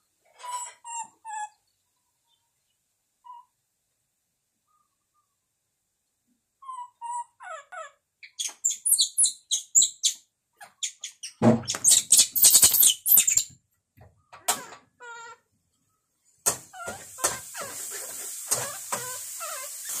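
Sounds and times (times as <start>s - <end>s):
baby monkey squeaking: 0.4s - 1.6s, 3.2s - 3.5s, 6.6s - 13.5s
knocks and rustling: 11.4s - 12.0s.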